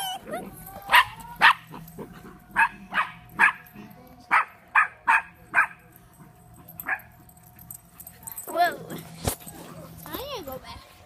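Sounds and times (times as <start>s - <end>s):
puppies yapping: 0.0s - 5.8s.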